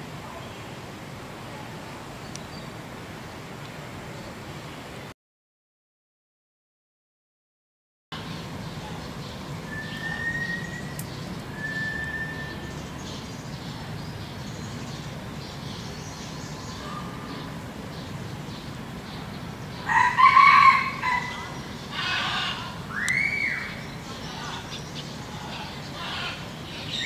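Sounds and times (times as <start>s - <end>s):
steady background hiss: 0.0s - 5.1s, 8.2s - 27.0s
faint bird whistles: 9.7s - 12.8s
peafowl calling: 19.8s - 27.0s.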